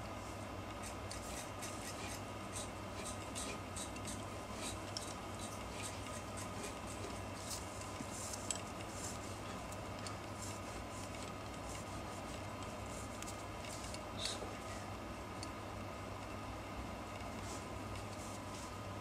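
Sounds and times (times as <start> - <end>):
low electrical hum: 0.0 - 19.0
pen nib scratching on paper: 0.8 - 9.2.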